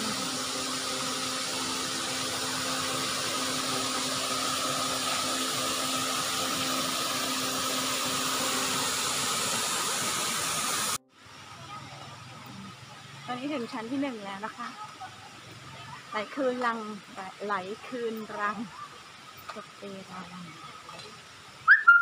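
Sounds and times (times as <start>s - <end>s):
waterfall rushing: 0.0s - 11.6s.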